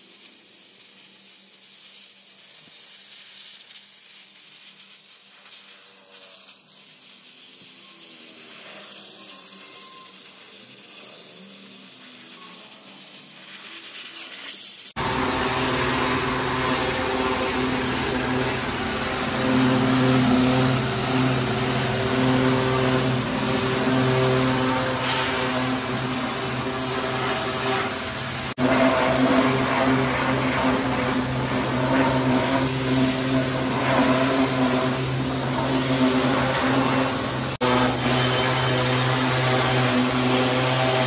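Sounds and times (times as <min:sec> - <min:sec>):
steam cleaner jet hissing: 0:00.0 - 0:41.0
water jet spraying: 0:00.0 - 0:41.0
pressure washer motor humming: 0:15.0 - 0:41.0.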